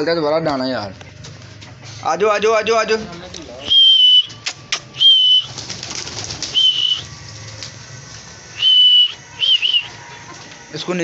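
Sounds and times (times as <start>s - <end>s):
man whistling: 3.6s - 5.6s, 6.5s - 7.1s, 8.6s - 9.9s.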